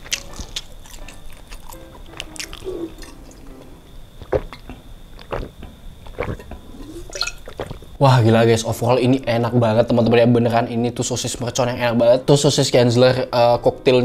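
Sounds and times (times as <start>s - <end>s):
swallowing gulps: 4.2s - 8.0s
bottle clicks: 7.1s - 7.5s.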